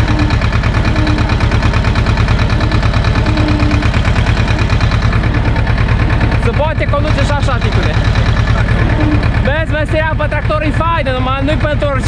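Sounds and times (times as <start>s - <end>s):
faint whine: 0.0s - 5.5s
tractor diesel engine running: 0.0s - 12.0s.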